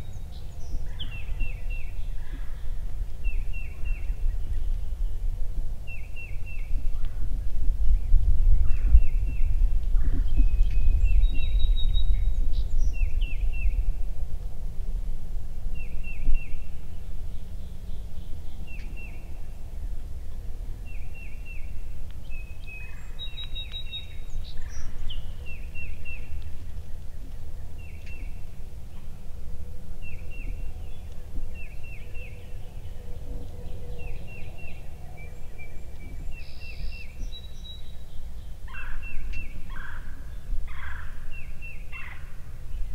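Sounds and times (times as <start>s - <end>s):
wind rumbling on microphone: 0.0s - 42.9s
small bird chirping: 22.3s - 26.5s.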